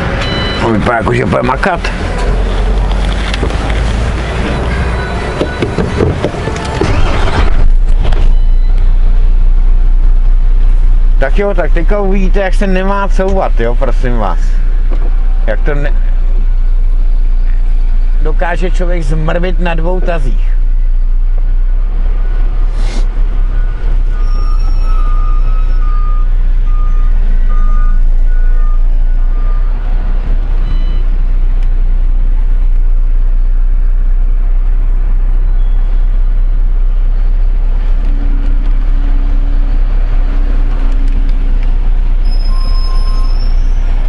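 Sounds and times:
diesel truck engine droning: 0.0s - 44.0s
reverse warning beeps: 0.2s - 1.4s, 4.4s - 6.0s, 8.0s - 9.0s, 23.4s - 29.8s, 30.6s - 31.1s, 42.2s - 43.9s.

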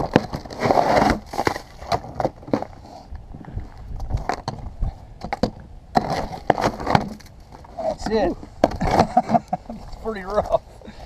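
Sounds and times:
ice cracking: 0.0s - 2.8s.

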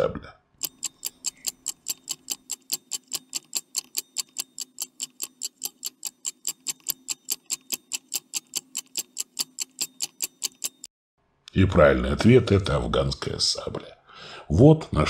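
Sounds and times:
stopwatch ticking: 0.6s - 10.9s.

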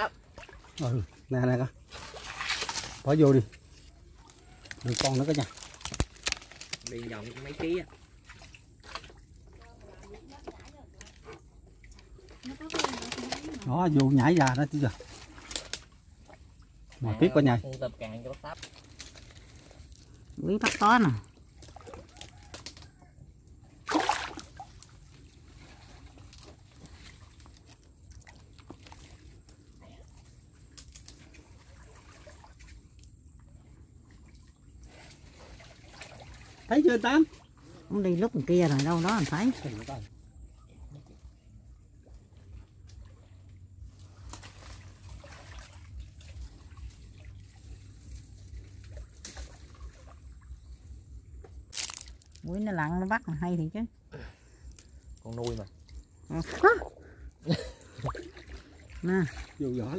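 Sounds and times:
small sharp splashes: 0.0s - 17.0s, 17.7s - 23.0s, 23.6s - 37.7s, 42.0s - 50.8s, 51.4s - 52.6s, 57.9s - 59.9s
faint water noise: 0.0s - 59.9s
short water splash: 1.9s - 3.2s, 23.8s - 27.4s, 44.0s - 50.4s.

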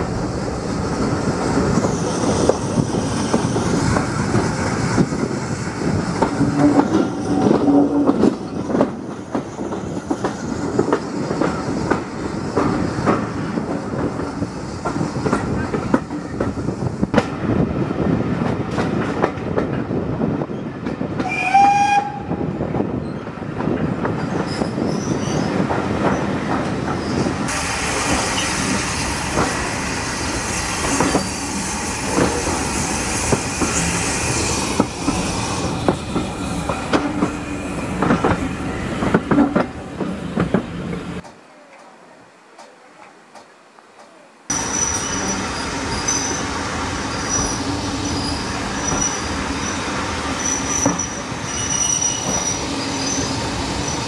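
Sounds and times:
train wheels clattering over rail joints: 1.4s - 17.4s, 32.1s - 41.3s
steam locomotive whistle: 21.2s - 22.4s.

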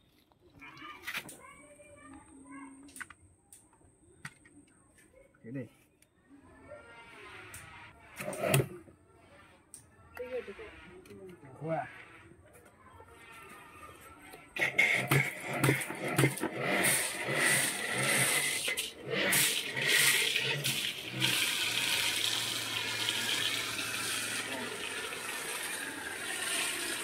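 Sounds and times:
pressure washer motor: 14.5s - 27.0s
pressure washer spraying foam: 14.6s - 27.0s.

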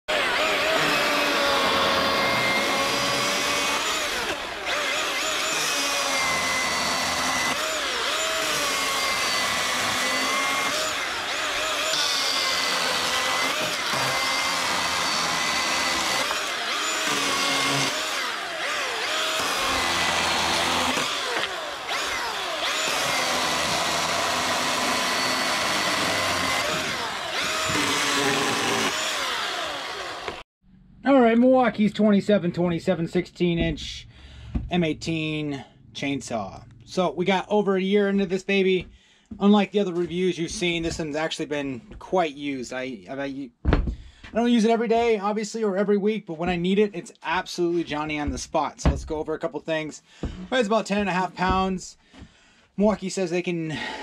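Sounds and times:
cordless chainsaw cutting wood: 0.1s - 30.4s.

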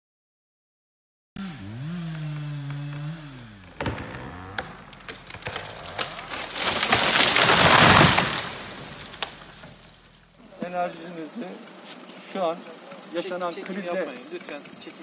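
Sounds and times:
chainsaw revving: 1.4s - 10.3s
tree cracking and crashing: 2.3s - 10.9s.

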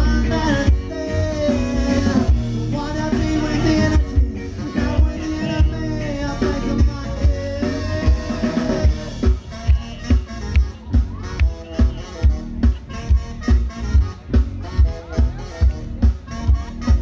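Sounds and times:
person singing: 0.0s - 9.8s
guitars: 0.0s - 17.0s.

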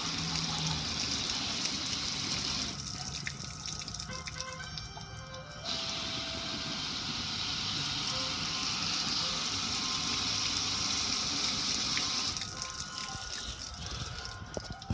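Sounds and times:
water splashing on metal grill: 0.0s - 4.8s.

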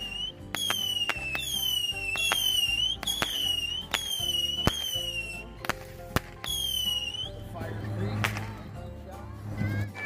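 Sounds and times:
firework crack: 0.0s - 7.4s, 8.1s - 8.7s
firework whistling shots: 0.0s - 7.4s.

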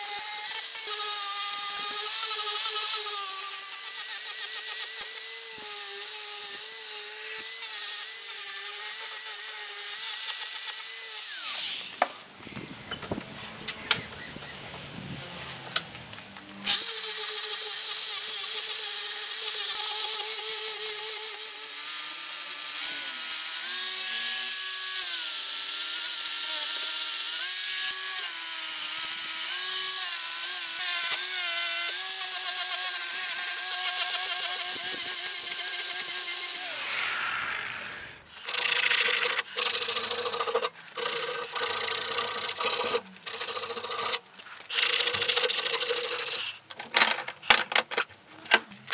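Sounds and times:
angle grinder sanding wood: 0.0s - 15.7s, 16.7s - 47.6s.

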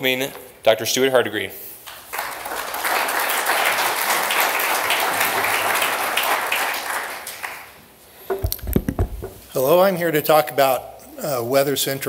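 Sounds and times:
audience applauding: 2.1s - 7.8s.

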